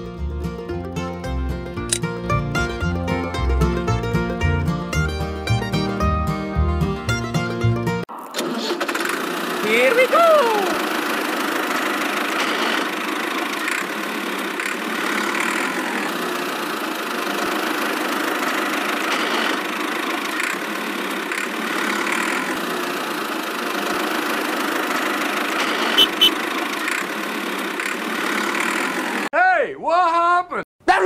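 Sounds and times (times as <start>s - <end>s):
short sharp clicks: 1.8s - 2.1s
toy tractor engine running: 8.1s - 29.3s.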